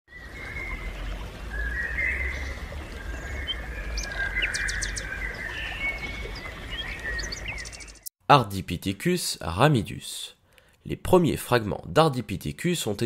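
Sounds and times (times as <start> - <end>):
birds chirping and trilling: 0.1 - 8.1.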